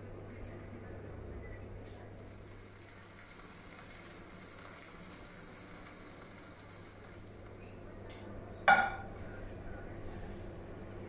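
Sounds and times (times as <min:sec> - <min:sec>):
steady low hum: 0:05.1 - 0:11.0.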